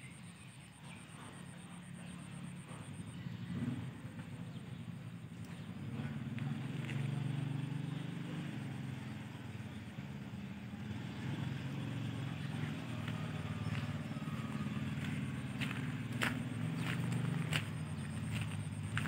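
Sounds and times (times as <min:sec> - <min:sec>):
low engine drone: 0:00.0 - 0:19.0.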